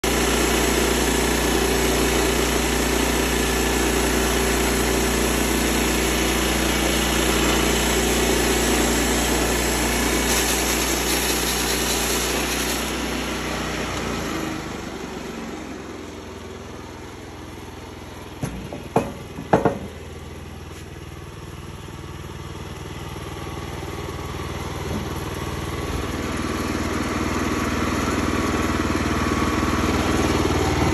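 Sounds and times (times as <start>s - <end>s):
sawmill engine running: 0.0s - 30.9s
band blade cutting timber: 0.4s - 13.3s
sharp knocks: 18.4s - 20.0s.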